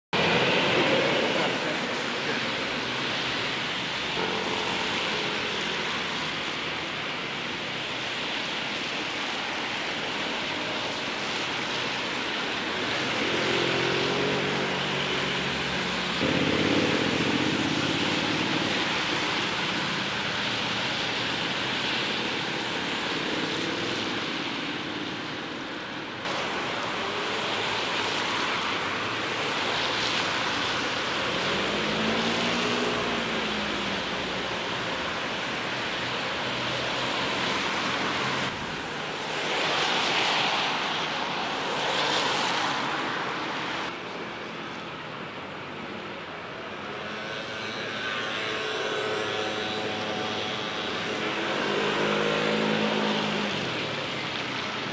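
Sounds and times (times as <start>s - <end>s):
traffic: 0.1s - 54.9s
metro train whining on a viaduct: 0.2s - 54.9s
river flowing: 26.2s - 54.9s.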